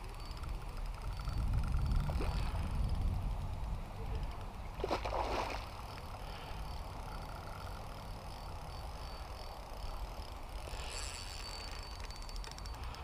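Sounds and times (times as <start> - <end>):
steady low rumble: 0.0 - 10.7
splash on pond surface: 4.8 - 5.8.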